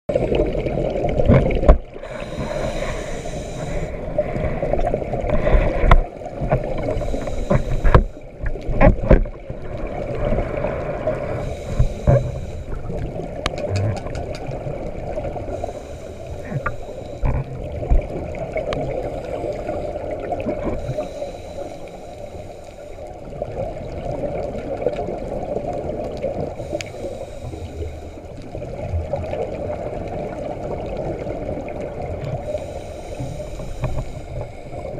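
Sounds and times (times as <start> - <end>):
gurgling rush of bubbles: 0.1 - 21.1
diver breathing through regulator: 2.0 - 4.7, 6.8 - 8.2, 11.2 - 12.9, 15.4 - 17.5, 18.9 - 23.3, 26.6 - 28.4, 32.4 - 34.9.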